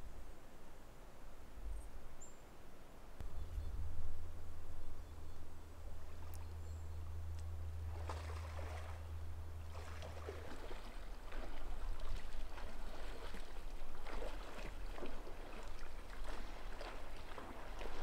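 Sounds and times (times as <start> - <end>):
low rumble: 3.2 - 13.2
moose splashing through water: 7.8 - 18.0.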